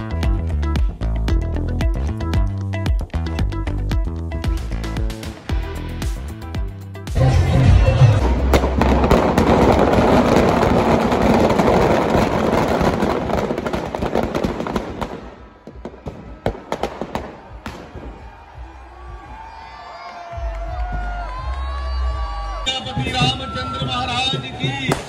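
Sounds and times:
firecrackers crackling and popping: 7.9s - 18.3s, 23.8s - 25.0s.

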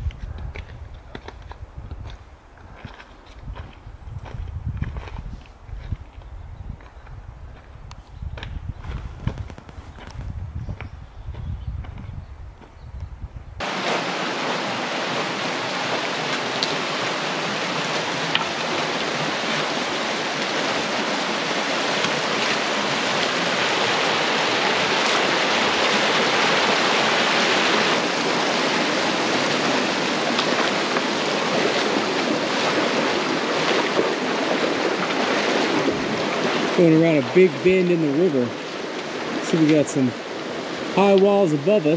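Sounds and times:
river water rushing: 13.6s - 41.9s.

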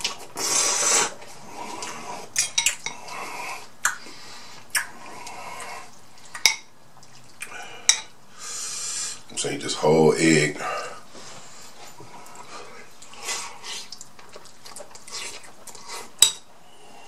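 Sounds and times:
person slurping noodles: 0.0s - 3.7s
eating noises: 0.0s - 8.1s, 12.0s - 16.5s
metal fork clinking glass bowl: 7.9s - 8.1s.

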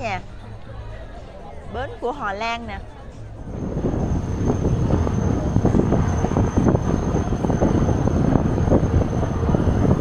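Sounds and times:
faint high whine: 3.4s - 10.0s
wind buffeting microphone: 3.4s - 10.0s.

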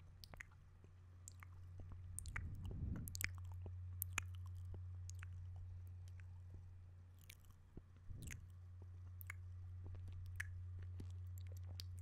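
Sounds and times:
steady low hum: 0.0s - 12.0s
wet mouth sounds: 0.2s - 0.6s, 1.3s - 5.4s, 7.2s - 8.6s, 10.2s - 12.0s
tongue clicks: 0.2s - 1.6s, 2.2s - 5.4s, 9.2s - 9.4s, 10.1s - 12.0s.

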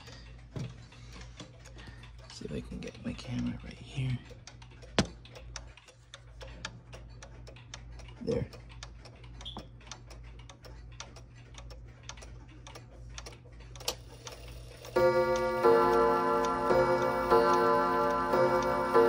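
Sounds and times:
clock ticking: 1.1s - 13.9s, 14.5s - 19.0s
clock gongs striking: 14.9s - 19.0s.

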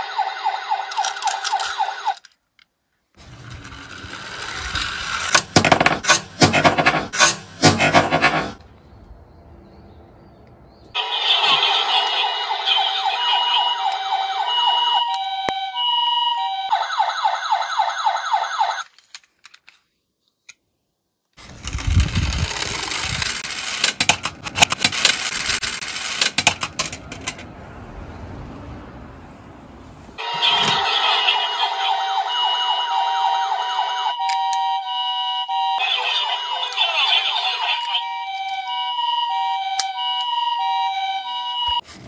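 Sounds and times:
toy siren: 0.0s - 2.3s, 11.0s - 18.8s, 30.2s - 41.8s
toy car rattling down slope: 0.7s - 2.4s, 3.2s - 8.5s, 21.4s - 27.5s.

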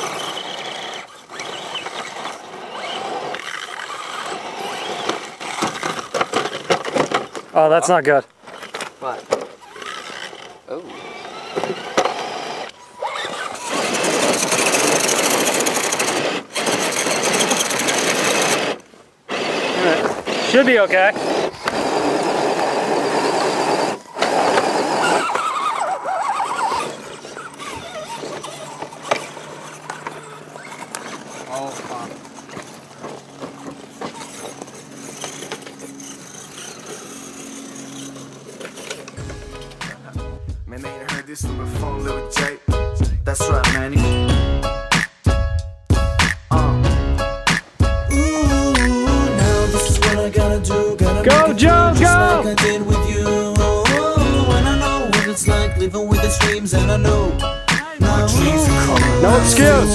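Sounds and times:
electric motor whirring and rattling: 0.0s - 7.6s, 8.4s - 40.0s, 57.8s - 59.9s.

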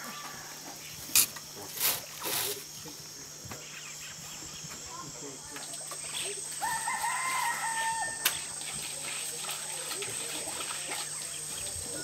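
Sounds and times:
steady high hiss: 0.0s - 12.0s
rooster crowing: 6.6s - 8.4s.

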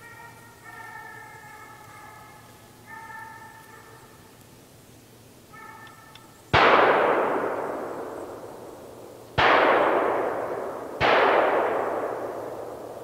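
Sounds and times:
hound baying faintly: 0.0s - 4.4s, 5.5s - 6.4s
shotgun shots echoing: 6.6s - 8.6s, 9.4s - 13.0s.

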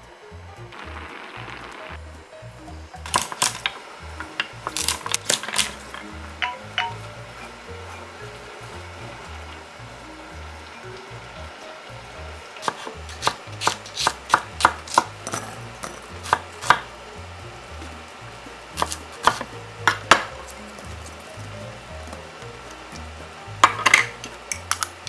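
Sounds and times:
knife chopping on wooden board: 12.6s - 16.9s, 18.8s - 20.3s.

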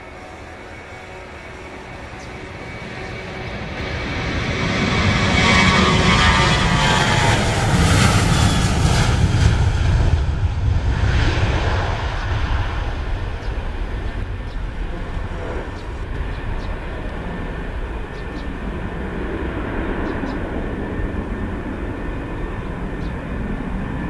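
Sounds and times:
jet engine rumble: 0.0s - 24.0s.

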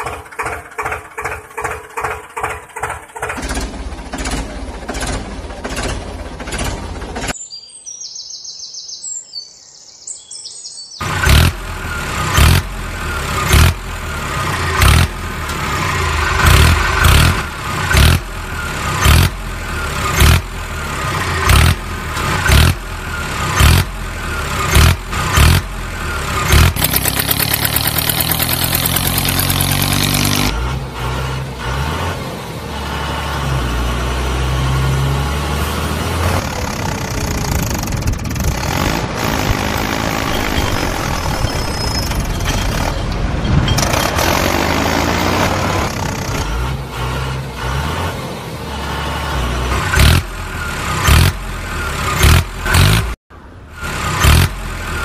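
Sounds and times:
tractor engine running: 0.0s - 7.4s, 11.0s - 55.0s.

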